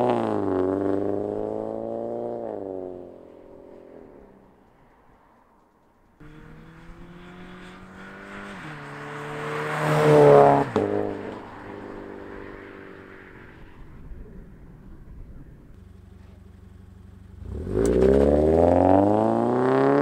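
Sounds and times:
exhaust crack: 10.5s - 20.0s.

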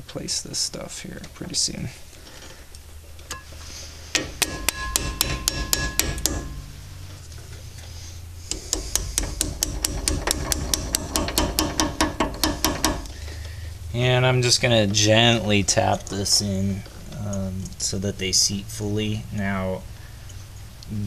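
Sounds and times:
hammer tapping metal punch: 4.2s - 6.8s, 8.5s - 13.2s.

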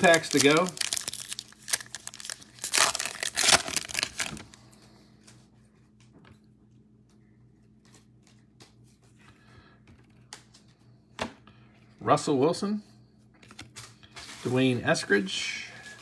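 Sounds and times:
foil wrapper tearing and crinkling: 0.0s - 4.5s.

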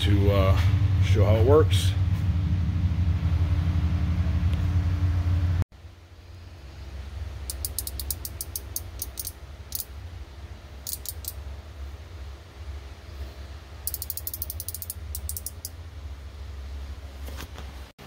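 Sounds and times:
throttle lever clicking: 7.5s - 9.9s, 13.9s - 15.7s.

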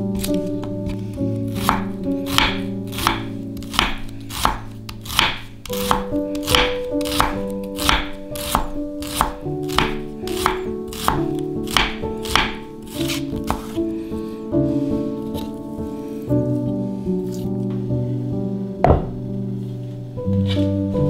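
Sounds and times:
soft background music: 0.0s - 21.0s
knife knocking on cutting board: 18.8s - 19.2s.

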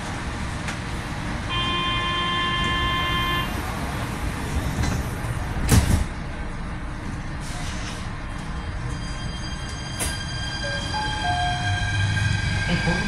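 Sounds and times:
train rumble: 2.5s - 13.0s.

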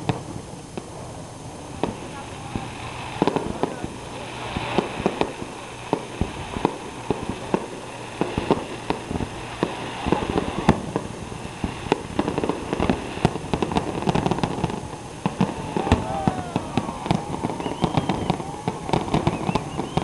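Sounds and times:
fireworks bangs and crackles: 0.0s - 20.0s.

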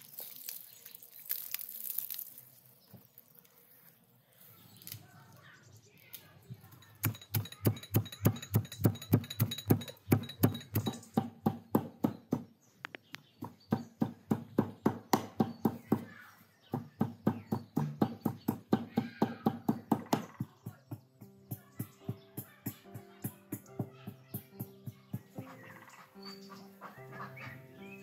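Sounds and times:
stone pounding in metal bowl: 7.0s - 12.5s, 16.8s - 21.0s.

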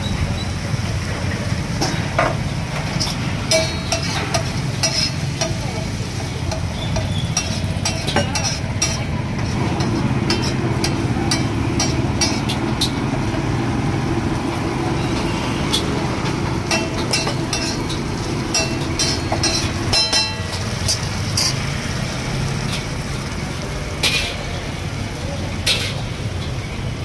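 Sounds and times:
metal spatula scraping iron griddle: 1.9s - 5.6s, 6.5s - 13.4s, 16.6s - 21.7s, 24.0s - 24.5s, 25.6s - 26.2s.

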